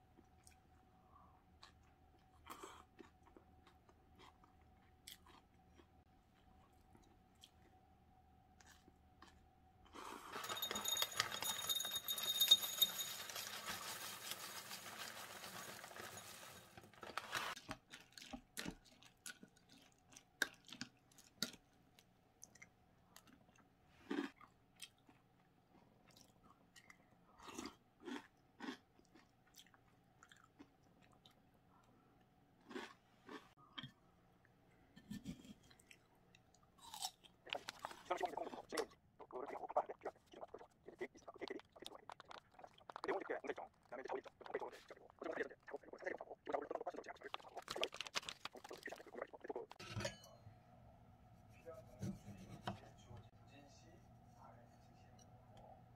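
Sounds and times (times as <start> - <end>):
crunching and chewing: 1.5 - 7.8, 8.5 - 9.5, 13.5 - 31.9, 32.6 - 34.0, 35.6 - 49.8
spoon clinking and scraping a bowl: 10.3 - 16.8, 49.7 - 50.5.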